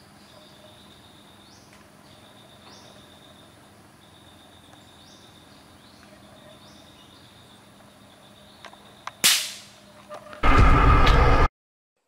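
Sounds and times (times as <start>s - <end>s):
insects droning: 0.0s - 10.4s
air rifle shot: 9.2s - 9.8s.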